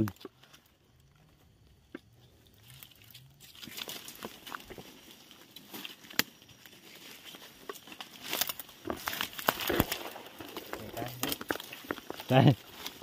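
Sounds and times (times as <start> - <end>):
twigs and leaves crackling underfoot: 0.0 - 13.0
twig snapping: 2.6 - 6.6, 7.2 - 13.0.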